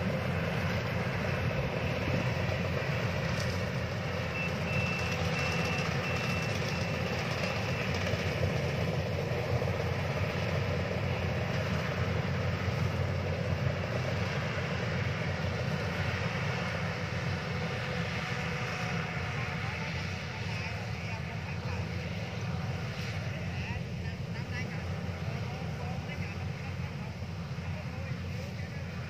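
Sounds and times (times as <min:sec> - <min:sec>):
combine harvester running: 0:00.0 - 0:29.0
high beeps: 0:04.3 - 0:07.9.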